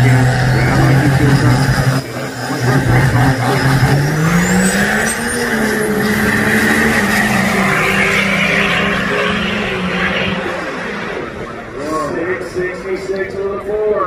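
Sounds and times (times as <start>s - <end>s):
diesel engine revving: 0.0s - 12.8s.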